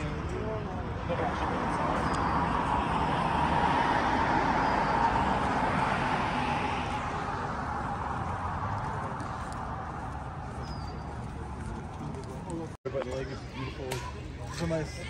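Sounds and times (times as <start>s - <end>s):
car passing by: 0.0s - 11.8s.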